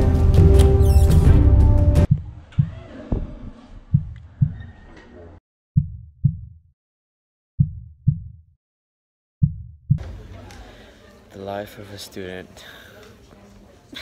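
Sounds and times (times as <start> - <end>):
heartbeat thumps: 2.0 - 4.7, 5.8 - 6.6, 7.6 - 8.4, 9.4 - 10.0
faint background noise: 10.0 - 14.0.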